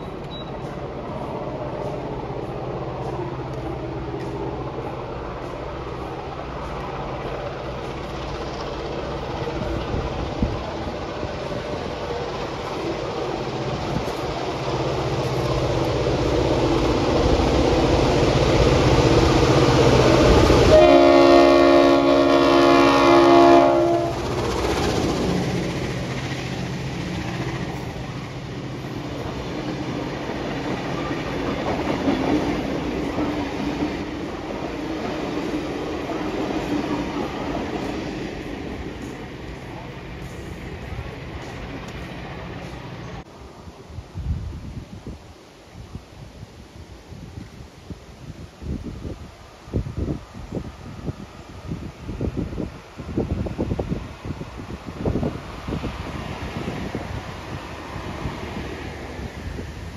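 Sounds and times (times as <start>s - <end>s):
train wheel clatter: 0.0s - 21.6s, 23.6s - 43.2s
diesel locomotives passing: 0.0s - 45.9s, 46.5s - 59.9s
multi-note chord horn: 20.7s - 24.1s.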